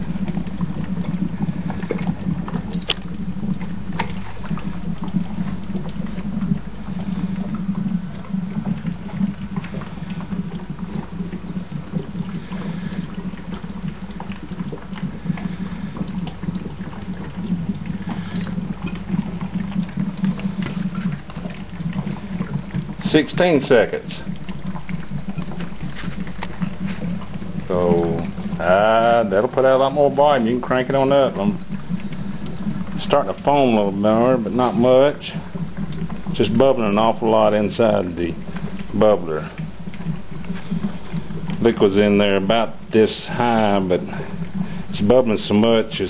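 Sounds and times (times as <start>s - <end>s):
gas bubbling through water: 0.0s - 46.0s
digital timer beeps: 2.7s - 3.0s, 18.4s - 18.6s.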